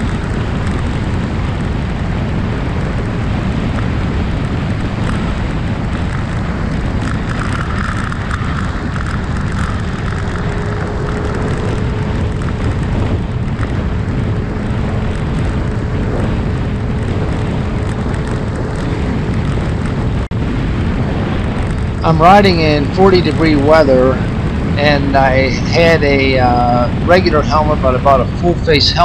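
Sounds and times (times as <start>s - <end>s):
scooter engine running: 0.0s - 20.2s
wind buffeting microphone: 0.0s - 29.0s.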